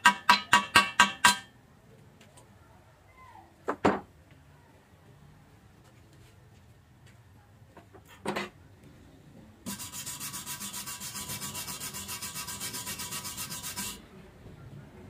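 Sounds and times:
wire brush scrubbing steel: 9.6s - 14.0s.

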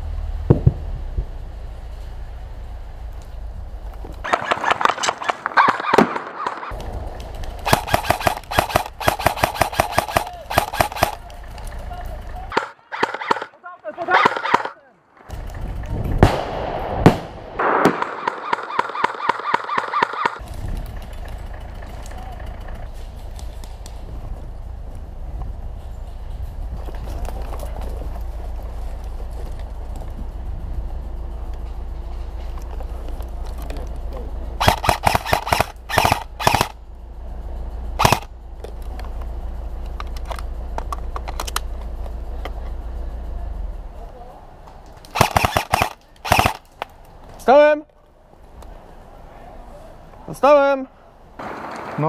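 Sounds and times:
military truck engine: 0.0s - 52.0s
electric airsoft rifle shots: 4.2s - 11.7s, 12.5s - 15.5s, 16.2s - 21.3s, 34.6s - 36.9s, 38.0s - 38.4s, 45.0s - 46.9s.

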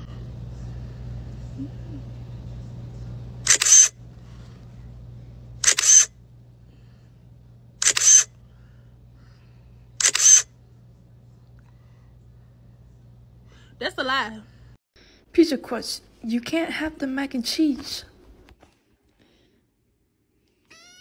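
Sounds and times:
low steady hum: 0.0s - 20.6s
camera shutter double click: 3.5s - 3.9s, 5.6s - 6.1s, 7.8s - 8.3s, 10.0s - 10.4s.

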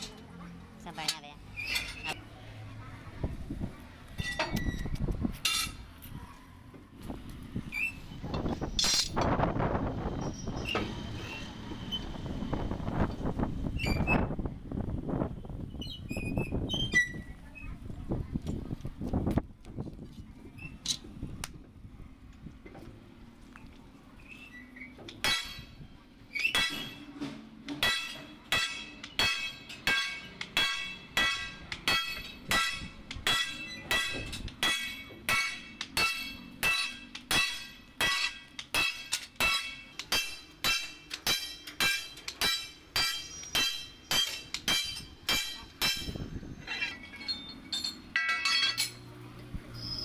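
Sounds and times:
sledgehammer striking metal spring: 25.1s - 25.8s, 26.4s - 27.1s, 27.7s - 46.3s.

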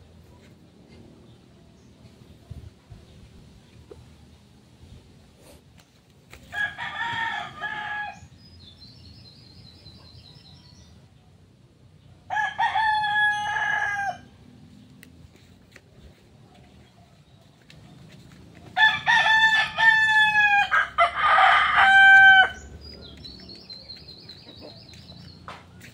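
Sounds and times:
rooster crowing: 6.5s - 8.3s, 12.3s - 14.4s, 18.8s - 22.7s.

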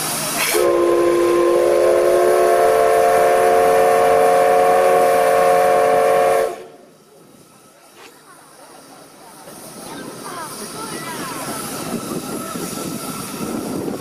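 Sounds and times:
steam whistle chord blast: 0.4s - 6.8s.

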